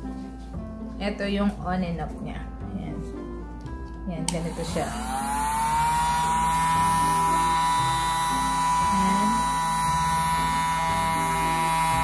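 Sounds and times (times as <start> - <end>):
suction motor high-pitched whine: 4.4 - 12.0.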